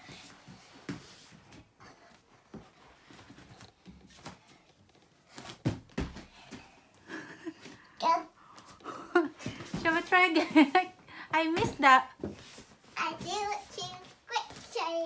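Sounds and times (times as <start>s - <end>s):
foam mat rustling: 0.0s - 6.8s, 11.6s - 15.0s
thumps on foam mat: 5.3s - 6.7s.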